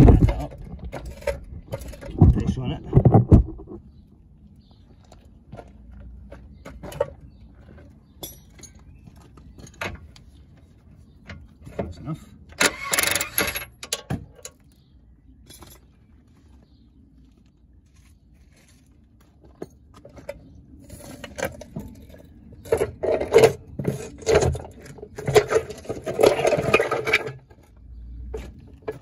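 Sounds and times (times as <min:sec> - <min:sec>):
metallic clinks and scrapes: 0:00.0 - 0:02.3, 0:15.4 - 0:16.0, 0:19.6 - 0:27.5.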